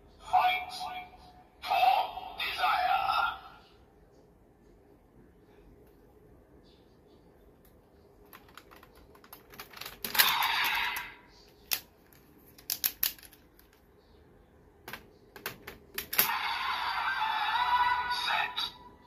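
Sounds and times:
plastic toy belt clicks: 0:12.6 - 0:13.8.

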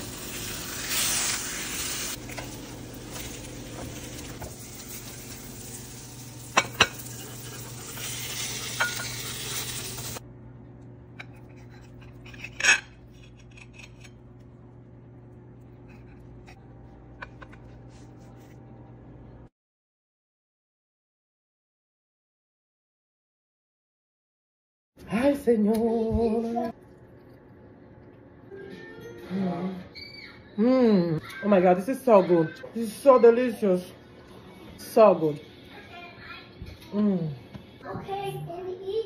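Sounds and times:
toast sizzling in frying pan: 0:00.0 - 0:10.2
spatula clinking on plates: 0:06.5 - 0:10.1
utensil clinking on pan: 0:08.7 - 0:09.3.

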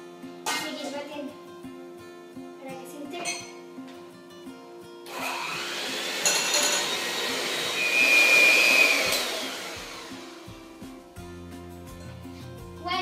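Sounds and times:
electric mixer whining: 0:05.1 - 0:10.5.

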